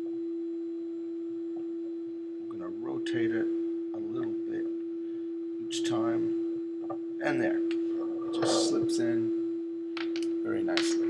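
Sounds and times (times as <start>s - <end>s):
steady single-pitched hum: 0.0s - 11.0s
man speaking: 2.5s - 4.7s, 5.7s - 6.4s, 7.2s - 9.4s, 10.4s - 11.0s.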